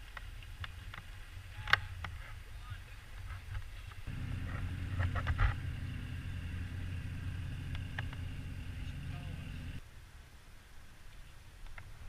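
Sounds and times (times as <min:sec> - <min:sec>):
boat engine droning: 0:04.1 - 0:09.8
sharp clicks: 0:07.5 - 0:09.1.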